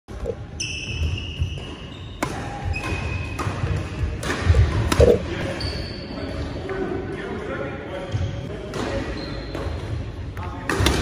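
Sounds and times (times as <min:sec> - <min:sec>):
sneakers squeaking on wooden floor: 0:00.1 - 0:06.1, 0:08.1 - 0:10.1.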